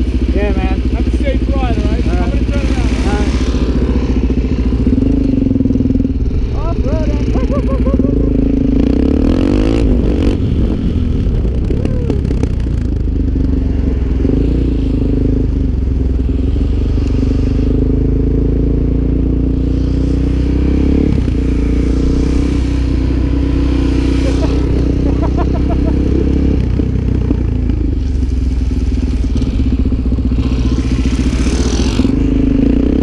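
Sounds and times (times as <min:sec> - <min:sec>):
motorcycle engine running: 0:00.0 - 0:33.0
wind rushing over microphone: 0:08.2 - 0:18.2.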